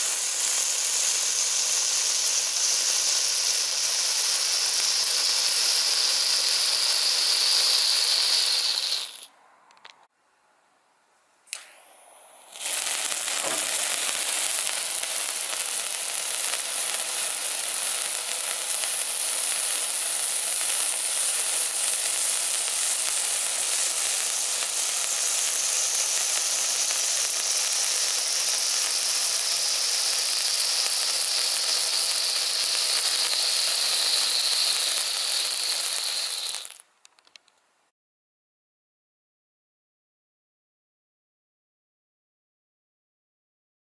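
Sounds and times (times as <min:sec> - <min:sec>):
fountain fireworks hissing: 0:00.0 - 0:09.3, 0:11.6 - 0:36.8.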